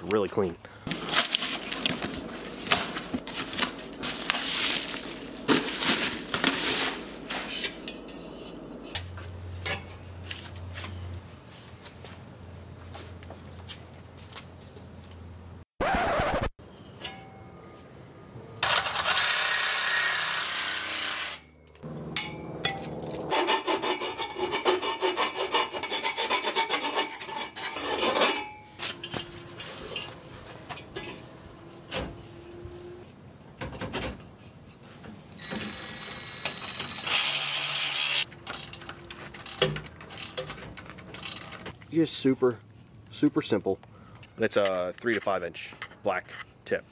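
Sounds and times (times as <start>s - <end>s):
metal scraping and rubbing: 0.9s - 11.1s, 18.6s - 33.0s, 34.3s - 41.8s.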